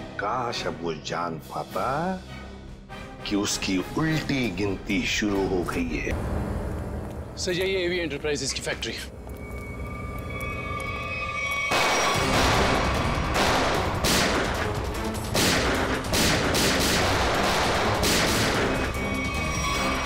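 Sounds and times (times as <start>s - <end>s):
gunfire volleys: 11.7s - 18.8s.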